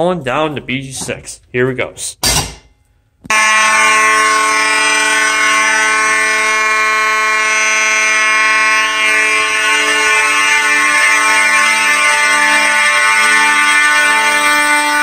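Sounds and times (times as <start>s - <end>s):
fire alarm horns blaring: 3.3s - 15.0s.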